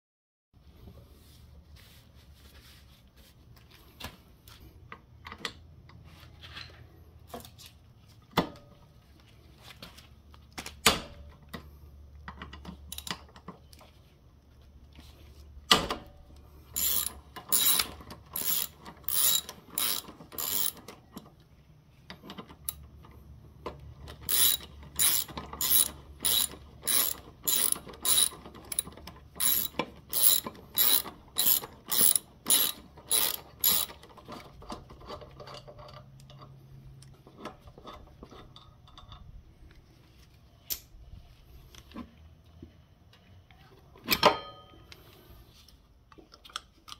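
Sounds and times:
socket ratchet clicking: 16.8 - 20.8, 24.1 - 34.0.

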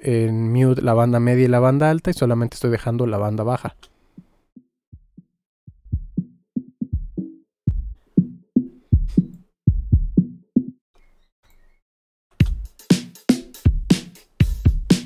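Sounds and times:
muffled electronic drum loop: 5.8 - 10.7, 12.4 - 15.0.

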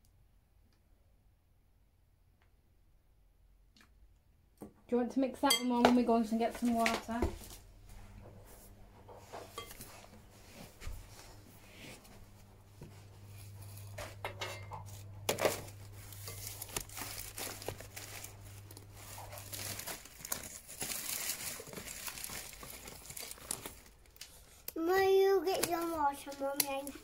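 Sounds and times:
low steady hum: 0.1 - 24.8
packaging crinkling: 14.8 - 24.7.

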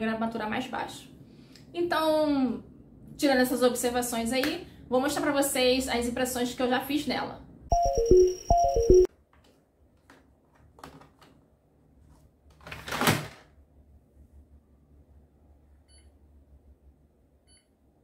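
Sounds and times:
printer beep: 7.7 - 9.1.

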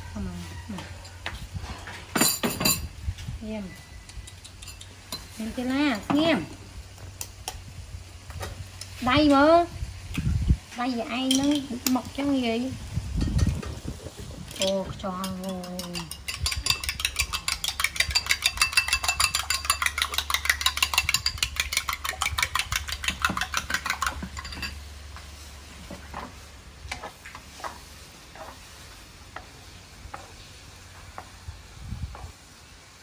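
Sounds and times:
metal spoon beating eggs in bowl: 14.5 - 24.8
wooden spatula stirring in wok: 14.6 - 31.4.

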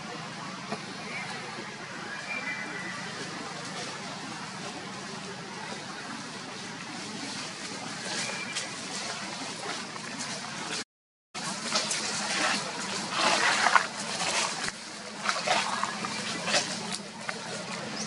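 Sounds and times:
rustling in dry leaves: 2.4 - 10.8, 11.4 - 18.0.

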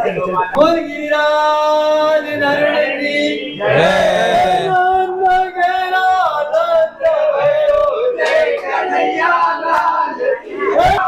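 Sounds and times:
men chanting together: 2.3 - 5.2, 5.8 - 11.0.

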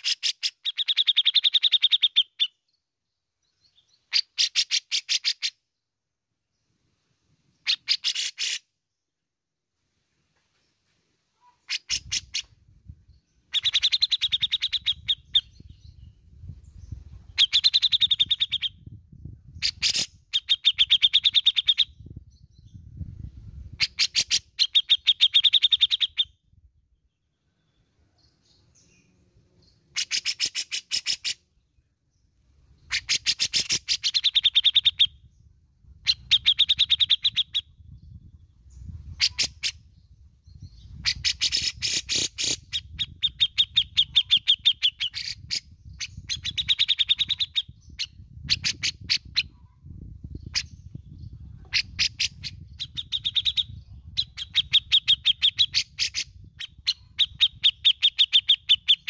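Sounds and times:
bird harsh rattling calls: 4.1 - 5.6, 7.6 - 8.6, 11.6 - 12.5, 41.0 - 45.6.

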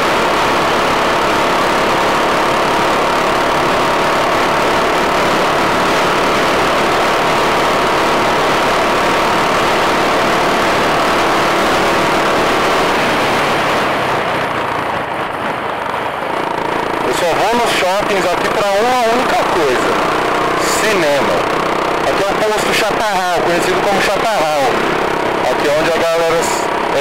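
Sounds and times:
motorcycle engine cruising: 0.0 - 27.0.

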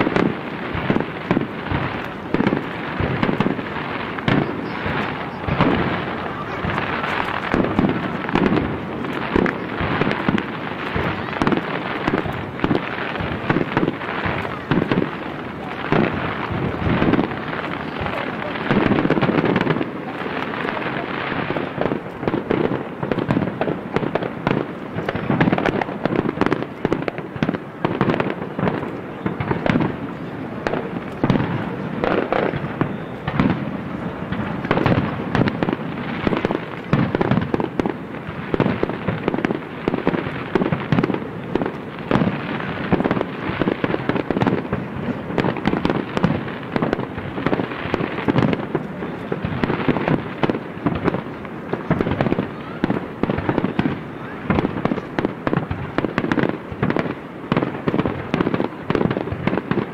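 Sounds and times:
fireworks barrage: 0.0 - 59.9.

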